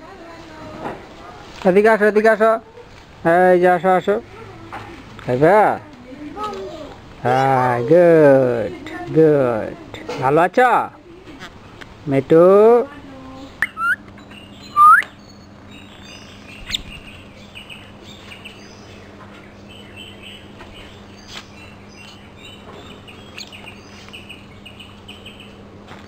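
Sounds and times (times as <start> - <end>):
myna rising whistle: 13.6 - 14.0, 14.6 - 15.1
myna chirps and squeaks: 13.6 - 17.2.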